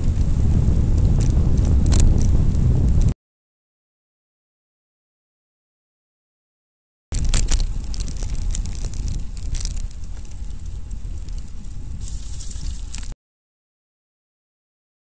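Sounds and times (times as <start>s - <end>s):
bicycle road noise: 0.0s - 3.2s, 7.1s - 13.2s
crackles and clicks: 0.0s - 3.2s, 7.1s - 13.2s
wind rumbling on microphone: 0.0s - 3.2s, 7.1s - 13.2s.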